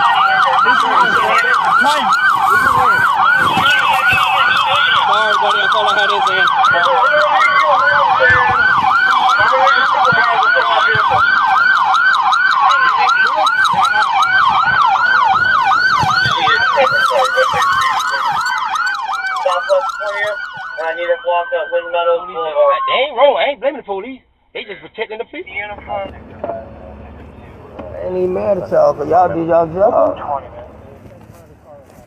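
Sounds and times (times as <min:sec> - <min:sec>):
police siren slow wail: 0:00.0 - 0:23.2
police siren fast yelp: 0:00.0 - 0:23.3.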